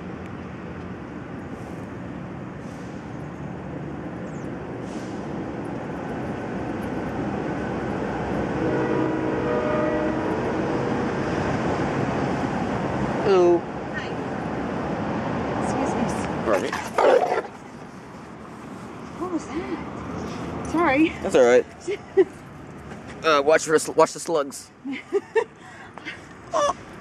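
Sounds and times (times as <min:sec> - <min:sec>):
vehicle rumble passing: 0:00.0 - 0:24.8.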